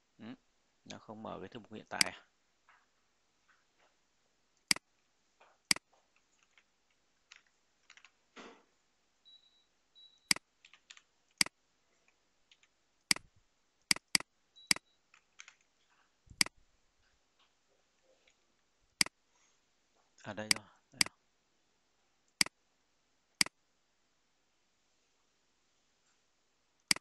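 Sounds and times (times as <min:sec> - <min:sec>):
faint high beeps: 0:09.2 - 0:10.4, 0:14.6 - 0:15.0
computer mouse clicks: 0:12.5 - 0:13.3, 0:13.9 - 0:15.7, 0:16.3 - 0:16.6.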